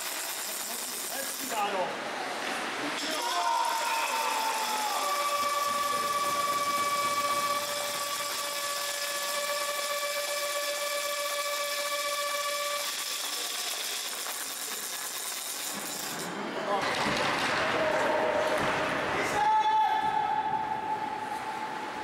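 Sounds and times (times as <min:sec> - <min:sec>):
goal horn long note: 0:03.6 - 0:12.9.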